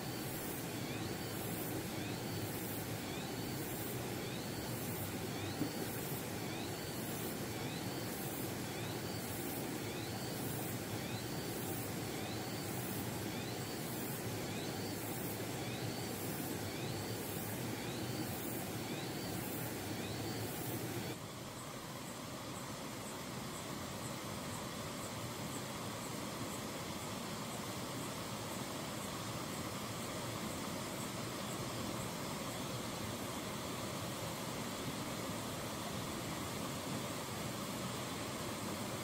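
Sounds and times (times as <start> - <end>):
outdoor background hiss: 0.0 - 39.0.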